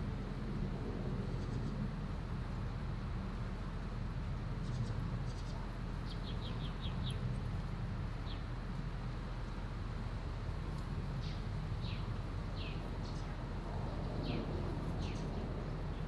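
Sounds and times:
small bird chirping: 4.6 - 7.2.

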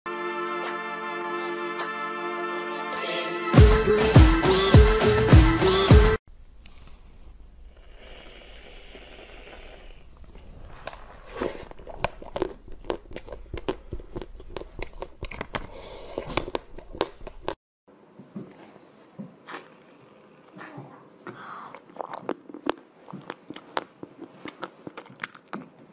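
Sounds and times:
aerosol cream can hissing: 7.8 - 10.0.

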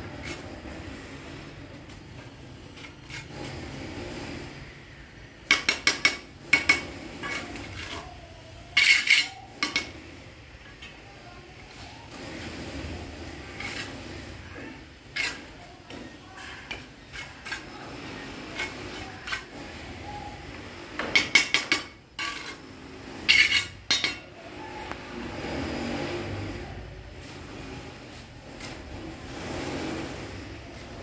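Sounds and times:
trowel scraping mortar: 0.0 - 4.8, 5.4 - 10.1, 11.6 - 31.0
trowel tapping bricks: 5.4 - 8.2, 8.8 - 10.0, 20.9 - 22.6.

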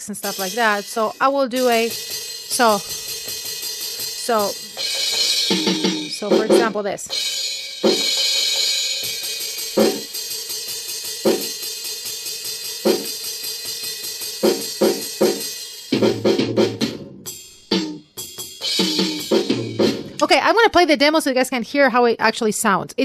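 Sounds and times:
ringing cymbal: 0.0 - 6.3.

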